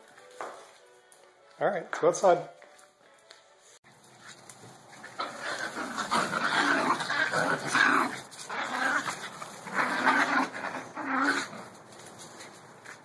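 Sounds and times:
small dogs growling: 5.0s - 11.8s.

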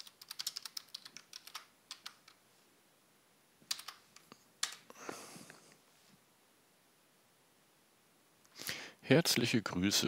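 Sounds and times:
keyboard typing: 0.0s - 2.4s, 3.7s - 4.9s.

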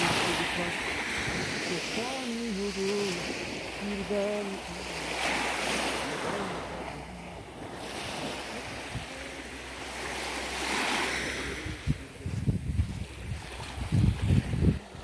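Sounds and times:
waves washing onto shore: 0.0s - 15.0s
wind buffeting microphone: 0.0s - 15.0s.

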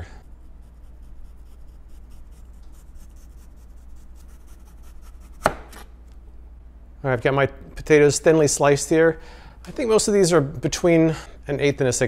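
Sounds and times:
knife slicing potato on cutting board: 4.2s - 5.9s
sharp knock on cutting board: 5.4s - 5.8s.

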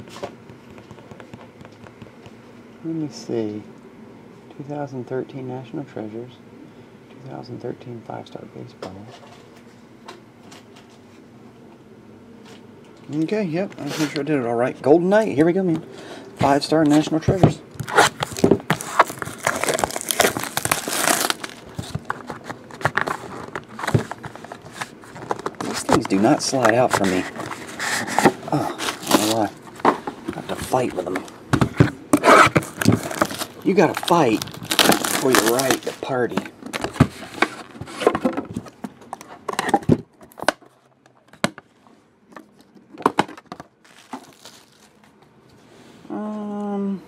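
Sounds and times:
plastic wrap crackling: 17.8s - 27.7s, 28.5s - 29.7s, 32.2s - 38.1s, 43.8s - 45.0s
box rustles and taps: 21.4s - 41.6s.

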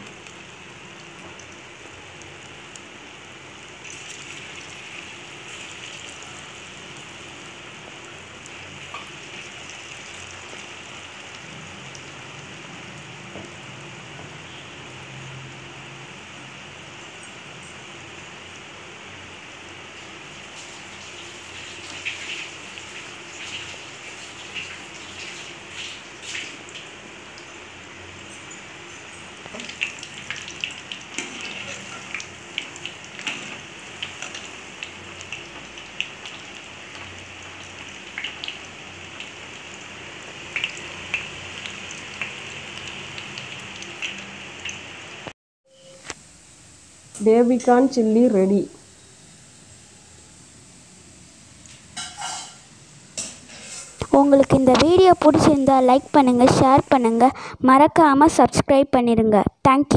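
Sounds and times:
deep-frying sizzle with pops: 0.0s - 59.9s.

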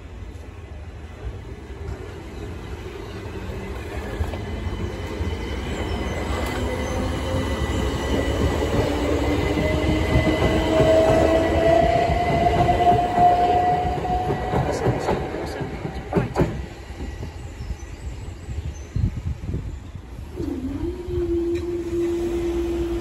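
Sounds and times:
train wheels rumbling on rail: 0.0s - 23.0s
train traction whine rising: 3.0s - 18.4s, 20.2s - 23.0s.

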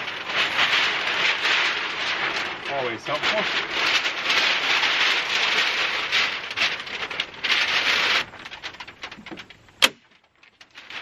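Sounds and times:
house wrap rustling and crackling: 0.0s - 11.0s
sharp snap: 9.8s - 10.2s.

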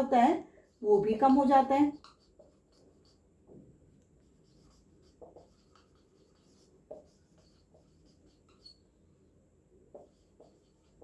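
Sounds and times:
marker squeaking on whiteboard: 1.9s - 3.2s, 4.4s - 8.9s, 10.0s - 11.0s.

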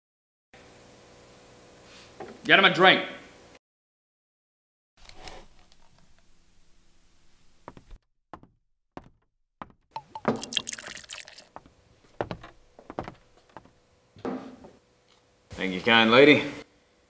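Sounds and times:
glass knocks and clinks: 10.0s - 11.0s
drink pouring into glass: 10.0s - 11.6s.

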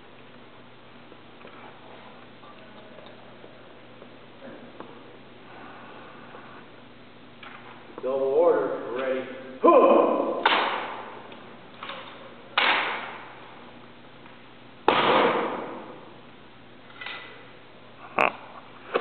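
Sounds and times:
rifle butts striking floor: 10.4s - 11.1s, 12.6s - 13.2s, 14.9s - 15.9s.

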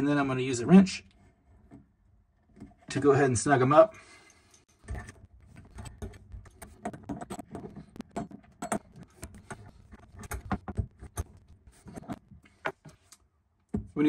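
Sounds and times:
metal wrench clinking and scraping: 4.2s - 11.3s.

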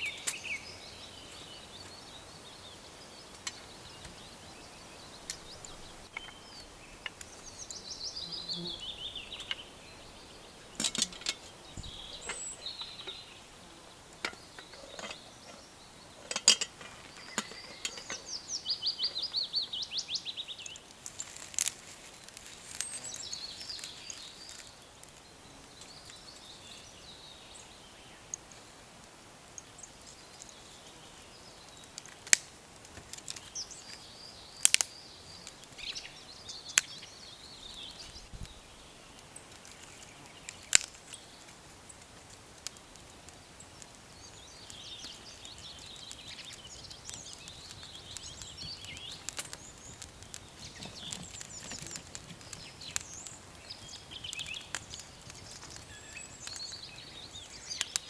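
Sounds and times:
birds singing: 0.0s - 28.7s, 29.5s - 42.0s, 42.6s - 58.0s
wood fire crackling: 0.0s - 58.0s
fire snapping: 5.1s - 7.8s, 20.3s - 26.9s, 28.2s - 58.0s.

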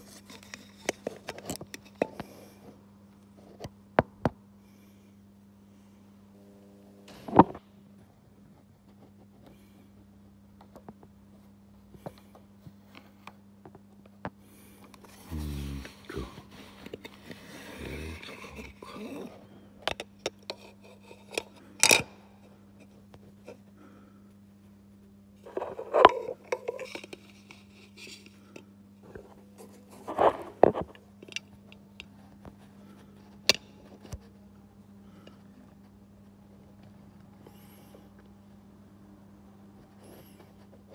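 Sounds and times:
faint low hum: 0.0s - 40.9s
phone handling rubbing and bumps: 7.1s - 7.6s.

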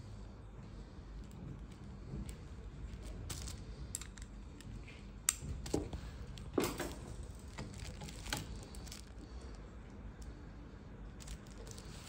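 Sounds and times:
metal lamp parts clicking: 3.4s - 4.3s.

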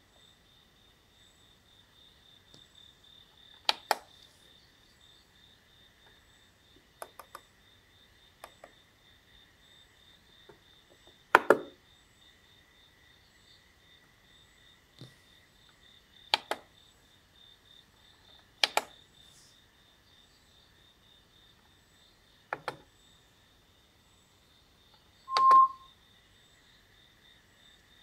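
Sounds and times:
faint high-pitched chirping: 25.0s - 26.0s.

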